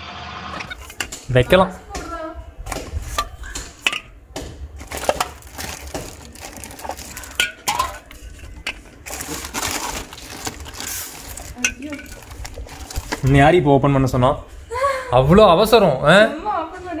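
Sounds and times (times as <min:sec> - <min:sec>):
plastic bag crinkling: 0:04.7 - 0:13.5
drink cans clinking on concrete: 0:04.8 - 0:13.3.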